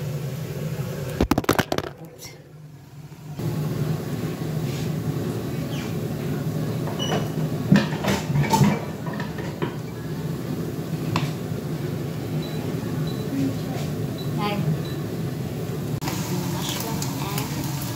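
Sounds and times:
cookware knocking and clattering: 6.9 - 9.8.

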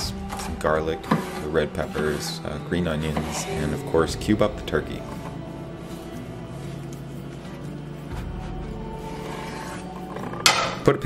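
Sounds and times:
music with held notes: 0.0 - 11.0
deep bass: 3.7 - 7.3.

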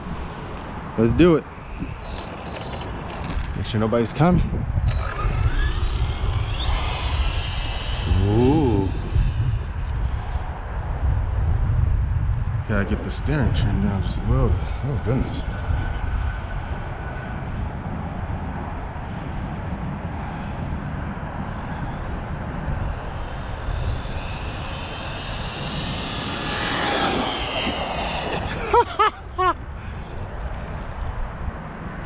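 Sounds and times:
wind rumble on microphone: 0.0 - 32.0
rc truck motor whining: 1.9 - 3.5, 4.8 - 9.6, 22.9 - 28.7
quick rising and falling chirps: 4.9 - 9.9, 22.8 - 29.5.

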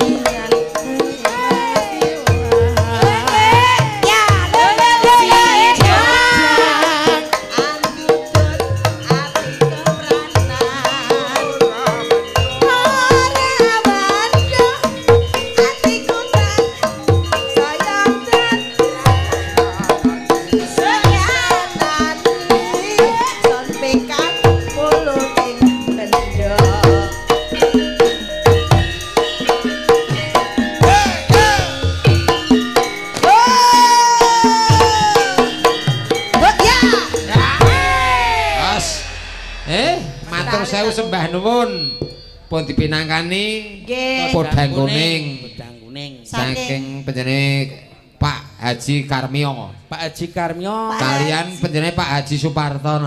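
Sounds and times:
hand drumming: 0.0 - 45.2
gliding melody line: 0.0 - 47.6
bronze gongs and metallophones: 0.0 - 48.1
struck metal notes: 18.8 - 46.6.

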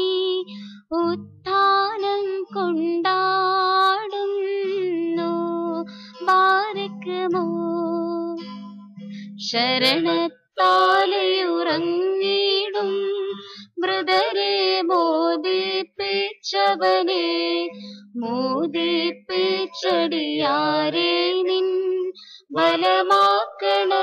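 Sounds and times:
plucked guitar: 0.0 - 24.0
person singing a hymn: 9.8 - 24.0.

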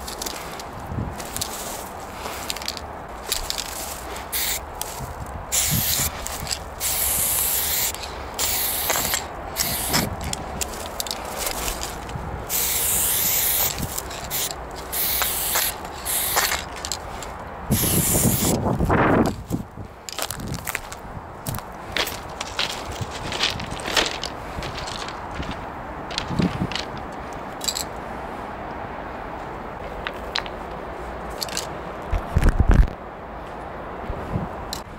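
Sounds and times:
low crunching noise: 0.0 - 17.7
spray can hissing: 4.3 - 4.6, 5.5 - 10.1, 12.5 - 16.7, 17.7 - 18.6.

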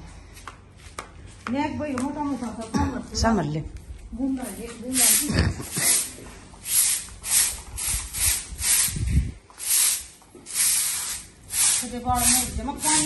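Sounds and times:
broom sweeping wet concrete: 4.3 - 13.0.

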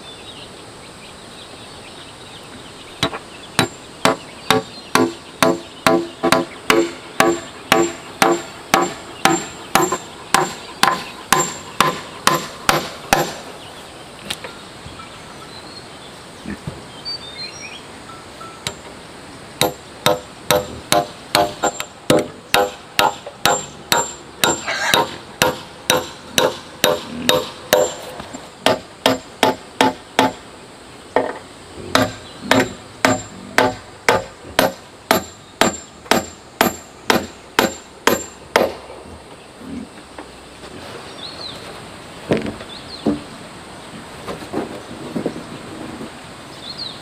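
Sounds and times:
hammer driving nail into wood: 3.6 - 13.4, 19.6 - 28.0, 28.6 - 30.4, 32.0 - 38.8.

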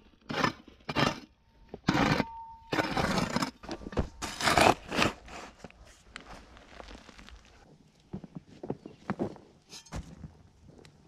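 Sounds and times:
hand tool scraping ground: 0.0 - 7.5, 9.6 - 10.2
faint metallic ring: 2.1 - 2.8.

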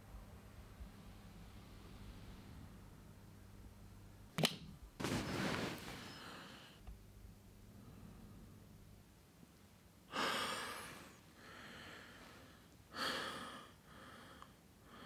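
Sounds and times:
person breathing heavily: 10.1 - 15.0.

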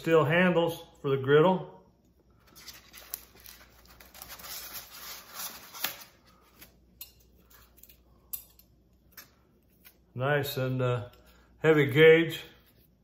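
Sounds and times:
plastic wrap crinkling: 2.4 - 6.8.

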